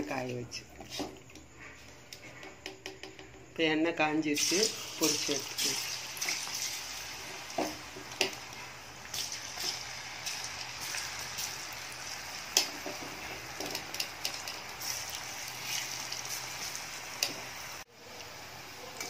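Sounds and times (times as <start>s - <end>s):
food deep-frying in hot oil: 4.3s - 19.0s.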